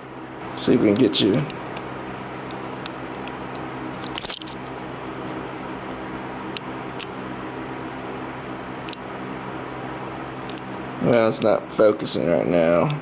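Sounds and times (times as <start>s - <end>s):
low electrical hum: 0.0s - 13.0s
rustling click: 2.5s - 4.6s
faint handling clicks: 10.4s - 11.6s.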